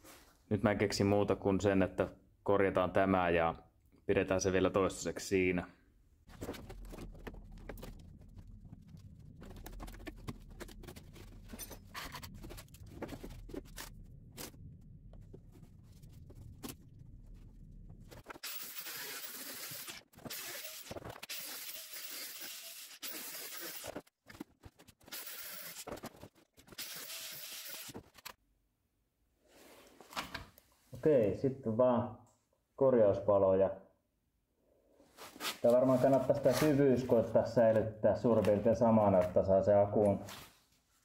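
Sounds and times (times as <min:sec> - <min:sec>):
low hum: 0:06.9 - 0:18.3
power tool cutting metal: 0:18.4 - 0:24.0.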